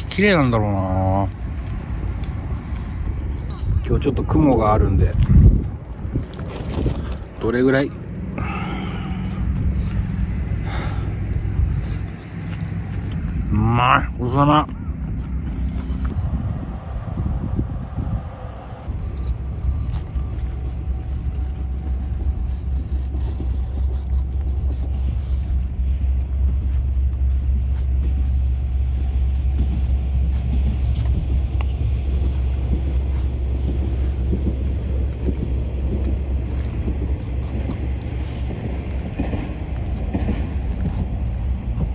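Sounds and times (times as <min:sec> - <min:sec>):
steady low rumble: 0:00.0 - 0:41.9
knife scraping wood: 0:18.9 - 0:41.9.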